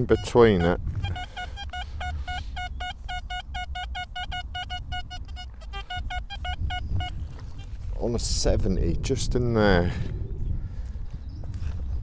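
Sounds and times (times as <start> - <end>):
metal detector short high beeps: 0.0 - 7.2.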